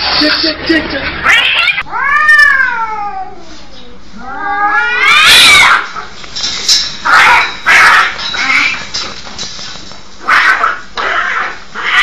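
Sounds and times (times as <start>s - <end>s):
cats hissing: 1.1s - 6.2s, 7.0s - 8.9s, 9.6s - 12.0s
cats yowling: 1.2s - 6.1s, 7.1s - 8.8s, 10.2s - 12.0s.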